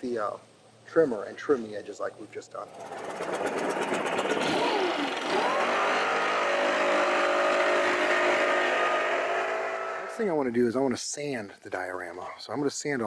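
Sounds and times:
blower motor whining: 2.6 - 10.2.

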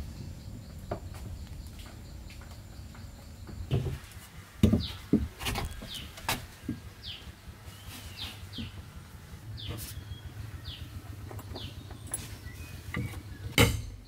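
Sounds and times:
bird chirping: 0.0 - 14.0
knocks and thuds: 3.0 - 4.0, 4.6 - 6.9.

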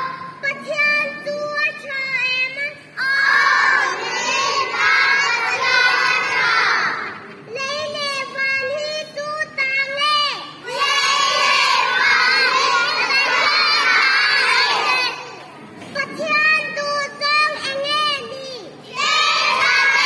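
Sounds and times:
children singing loudly: 3.0 - 8.1, 9.9 - 15.5, 18.8 - 20.0.

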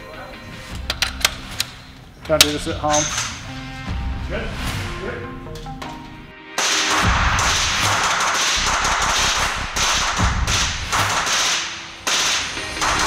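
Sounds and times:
rapid suppressed gunfire: 6.6 - 13.0.

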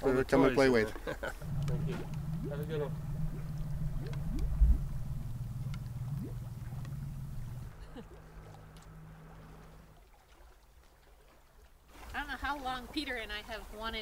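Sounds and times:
motorboat engine droning: 1.2 - 10.1
low thump: 1.4 - 7.7.

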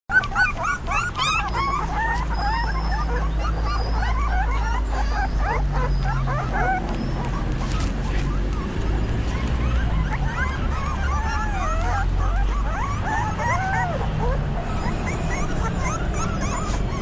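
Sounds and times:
puppies whining and squeaking: 0.1 - 17.0.

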